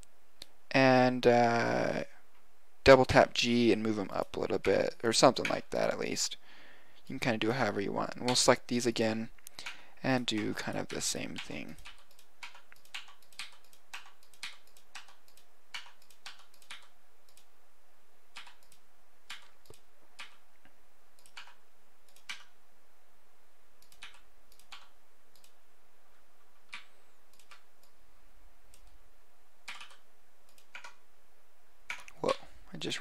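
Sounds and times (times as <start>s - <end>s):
keyboard and mouse clicking: 5.4s - 5.6s, 9.4s - 17.5s, 18.4s - 20.4s, 21.2s - 22.5s, 23.8s - 25.6s, 26.6s - 28.0s, 28.7s - 29.0s, 29.6s - 31.0s, 31.9s - 32.2s.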